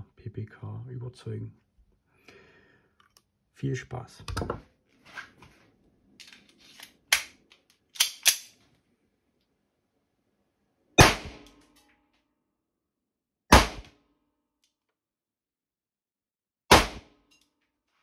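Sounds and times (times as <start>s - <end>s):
blank pistol bangs: 11.0s - 11.5s.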